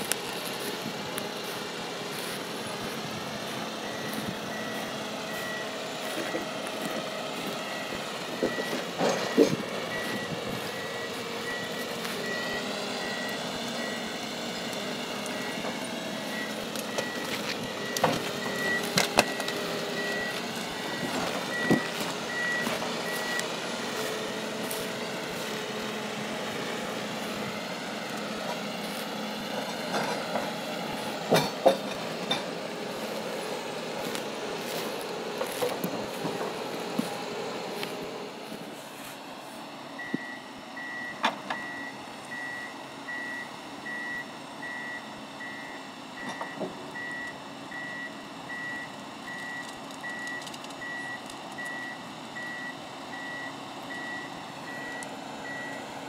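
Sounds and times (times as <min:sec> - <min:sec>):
forwarder engine and hydraulics droning: 0:00.0 - 0:56.0
electronic beeping alarm: 0:03.7 - 0:25.5, 0:40.0 - 0:55.8.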